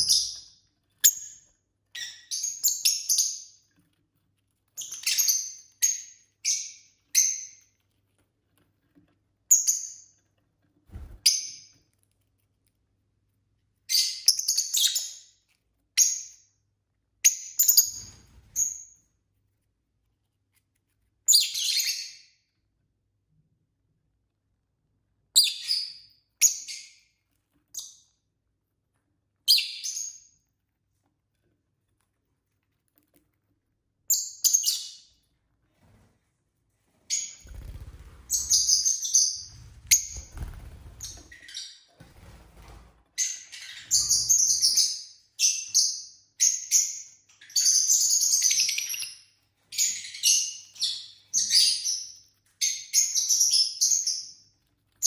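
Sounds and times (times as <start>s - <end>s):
lovebirds chirping: 0.0s - 3.6s, 4.8s - 7.7s, 37.1s - 41.9s, 43.2s - 54.5s.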